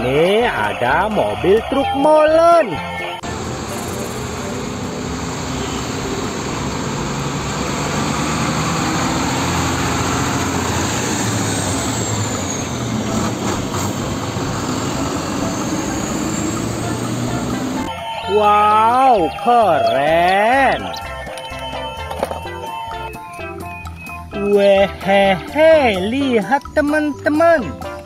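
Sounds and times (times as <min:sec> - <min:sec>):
road traffic noise: 0:00.0 - 0:28.0
truck diesel engine passing: 0:00.0 - 0:28.0.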